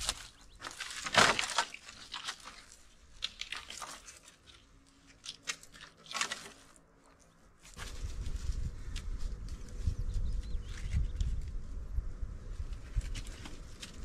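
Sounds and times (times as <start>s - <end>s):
sticks knocking and rustling: 0.0s - 9.7s, 12.6s - 14.0s
dry sticks clattering and crunching: 0.0s - 11.6s, 12.6s - 14.0s.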